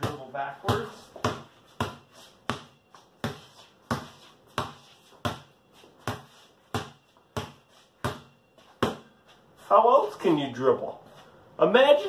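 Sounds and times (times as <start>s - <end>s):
basketball bouncing on concrete: 0.0s - 9.2s.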